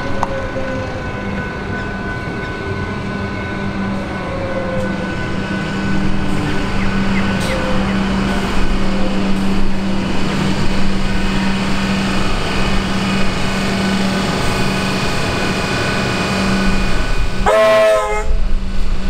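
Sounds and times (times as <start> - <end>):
electric train hum and whine: 0.0 - 19.0
train horn blast: 15.6 - 18.6.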